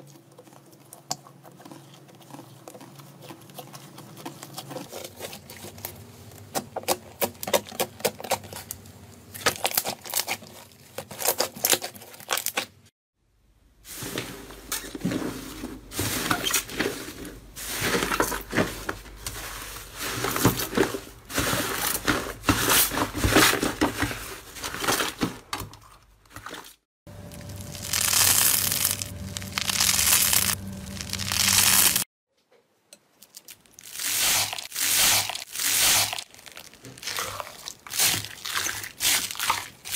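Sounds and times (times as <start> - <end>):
crunchy foam bead slime crackle: 27.1 - 32.1, 33.2 - 39.9
slime squishing and popping: 27.4 - 32.0.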